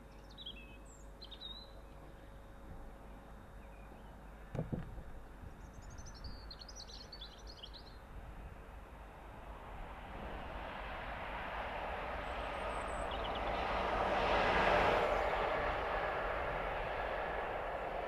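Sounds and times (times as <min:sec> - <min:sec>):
knock: 0:04.5 - 0:05.0
diesel locomotive approaching: 0:08.3 - 0:18.0.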